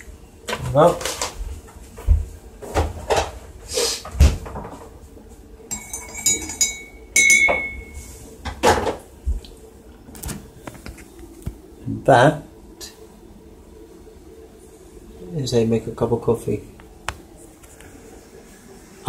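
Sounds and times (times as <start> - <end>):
fridge door opening and shutting: 2.1 - 5.0, 10.1 - 10.6
glass clinking: 5.7 - 8.0.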